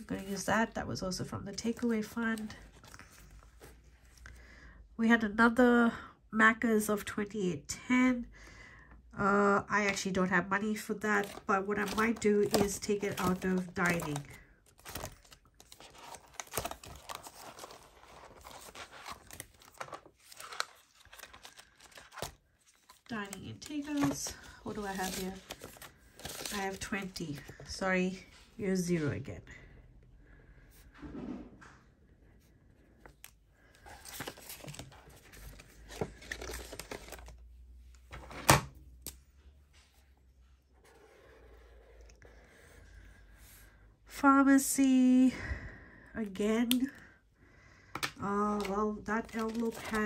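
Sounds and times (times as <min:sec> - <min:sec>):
paper envelopes rustling: 0:10.7 - 0:28.3, 0:33.0 - 0:39.2, 0:48.0 - 0:50.0
paper money rustling: 0:33.8 - 0:37.4, 0:48.6 - 0:50.0.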